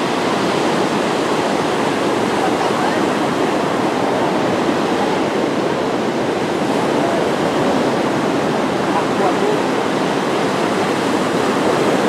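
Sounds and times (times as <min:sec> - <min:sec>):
waves breaking on beach: 0:00.0 - 0:12.0.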